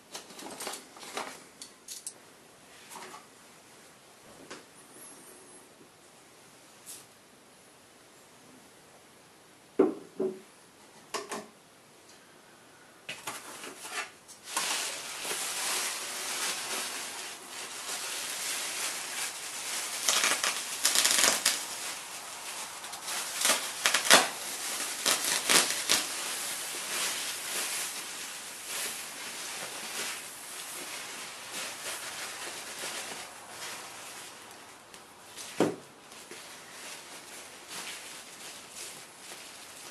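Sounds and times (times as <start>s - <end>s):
sack crackling and rustling: 14.4s - 39.9s.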